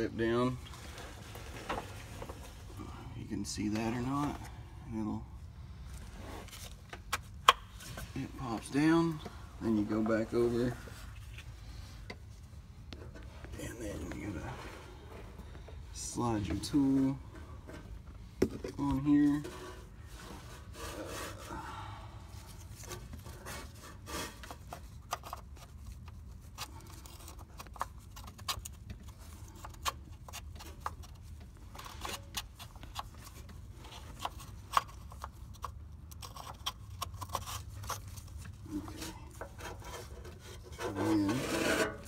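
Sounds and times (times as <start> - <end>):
low steady hum: 0.0 - 42.0
tool rubbing and scraping: 18.9 - 21.6, 22.6 - 24.8, 37.2 - 42.0.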